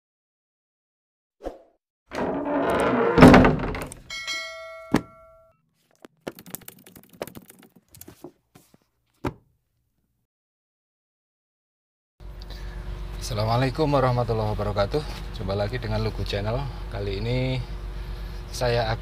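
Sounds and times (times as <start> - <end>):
ringing bell-like chime: 4.1 - 5.6.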